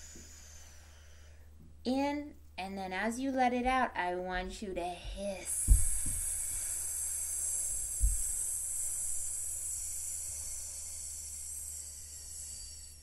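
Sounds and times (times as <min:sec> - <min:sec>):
woman hissing on exhale: 0:00.0 - 0:01.3, 0:05.5 - 0:13.0.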